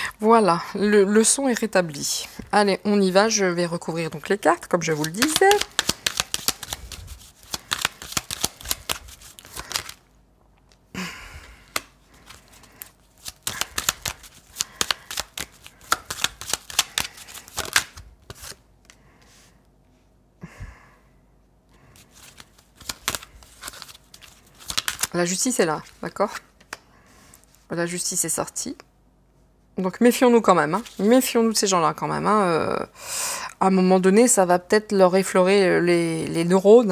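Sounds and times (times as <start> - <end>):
cards being shuffled: 4.2 - 10.0, 11.6 - 19.0, 22.0 - 25.2.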